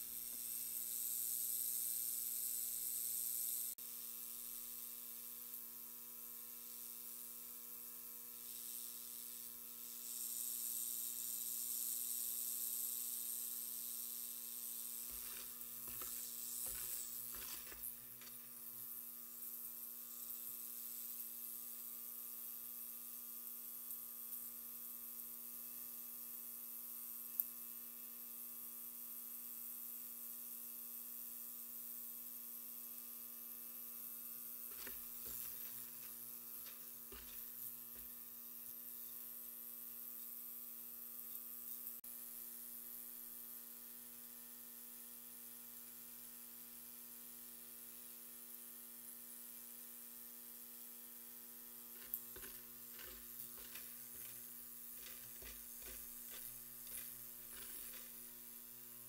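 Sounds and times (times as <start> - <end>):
ultrasonic cleaner humming: 14.8 - 19.0, 34.6 - 38.4, 51.9 - 59.0.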